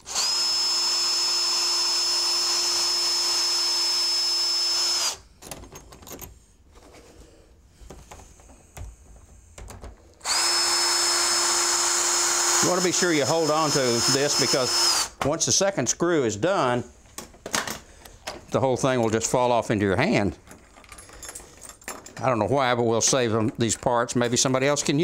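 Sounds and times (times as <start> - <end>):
cordless drill whining: 0.0 - 5.3, 9.5 - 15.2
lock hardware clicks and rattles: 5.3 - 6.5, 7.8 - 10.2, 20.4 - 22.4.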